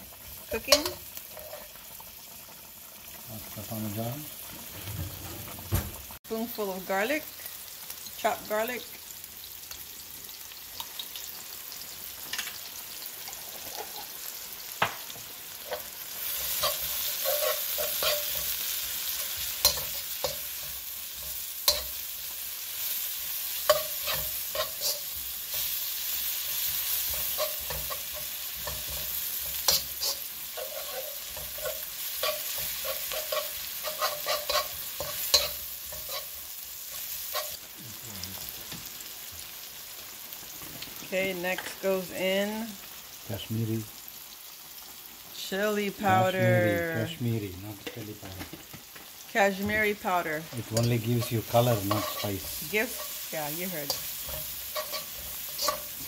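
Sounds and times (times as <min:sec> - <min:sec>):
food sizzling in oil: 0:00.0 - 0:56.0
metal spatula tapping pan: 0:00.6 - 0:01.1, 0:19.2 - 0:22.0, 0:23.6 - 0:25.7, 0:27.0 - 0:36.3, 0:50.7 - 0:53.2, 0:53.8 - 0:56.0.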